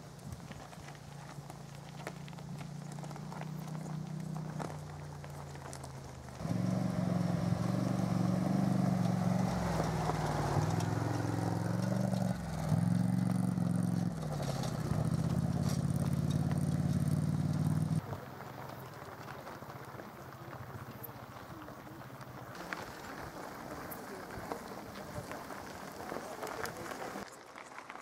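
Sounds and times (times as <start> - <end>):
quad bike engine revving: 6.4 - 18.0.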